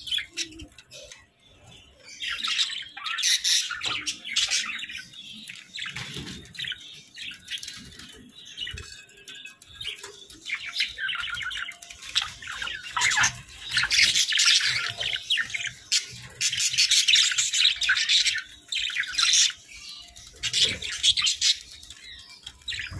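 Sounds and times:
budgerigars chattering: 0:10.5 - 0:19.6, 0:20.2 - 0:22.0.

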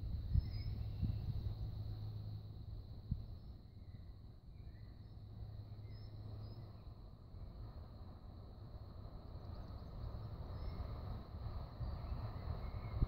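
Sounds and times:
faint bird chirps: 0:00.3 - 0:01.6, 0:03.3 - 0:07.0, 0:09.5 - 0:11.0.

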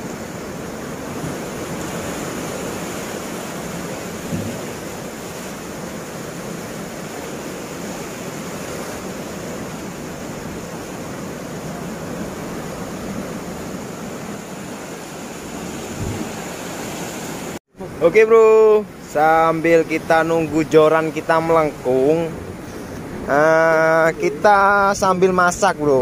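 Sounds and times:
waves breaking on rocks: 0:00.0 - 0:17.6.

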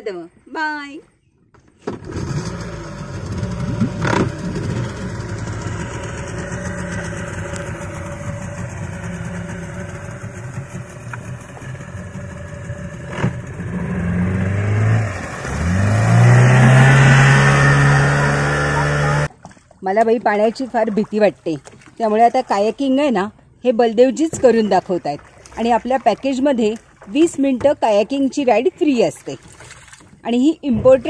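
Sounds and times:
outboard motor running: 0:01.5 - 0:22.7.

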